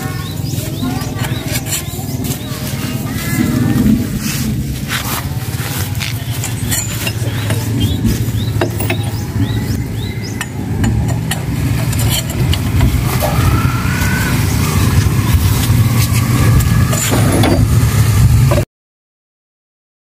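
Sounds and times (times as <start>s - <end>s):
engine running: 0.0s - 18.7s
metallic clinks of lug wrench: 6.4s - 7.6s, 10.4s - 12.6s.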